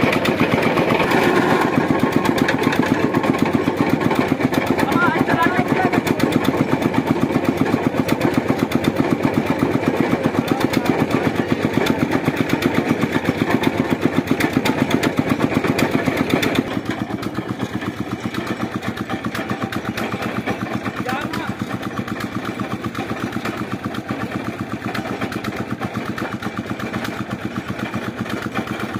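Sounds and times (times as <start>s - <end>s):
rig engine chugging: 0.0s - 28.9s
steady engine hum: 0.0s - 28.9s.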